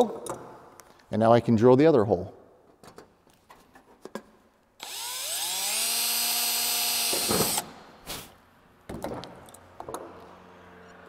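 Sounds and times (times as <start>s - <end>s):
cordless drill whining: 4.8s - 7.7s.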